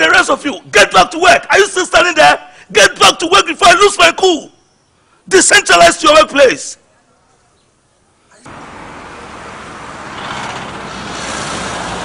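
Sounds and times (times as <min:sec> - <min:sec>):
road traffic noise: 0:07.7 - 0:12.0
car driving past: 0:08.5 - 0:12.0.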